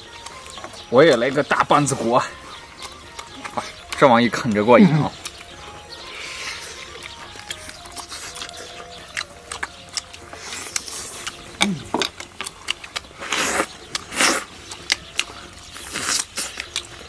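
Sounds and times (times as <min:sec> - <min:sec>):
loud slurping: 0:13.1 - 0:14.7.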